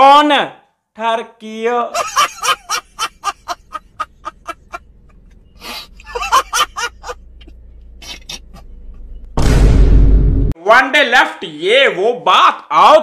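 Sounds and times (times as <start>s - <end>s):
man laughing: 1.9s - 9.1s.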